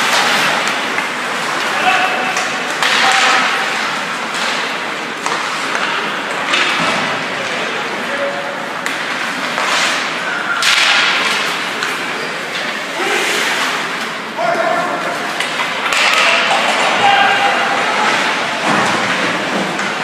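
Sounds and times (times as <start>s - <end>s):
hockey sticks and puck knocking: 0.0s - 7.7s, 8.7s - 12.8s, 15.3s - 20.0s
skates scraping on ice: 8.8s - 14.1s.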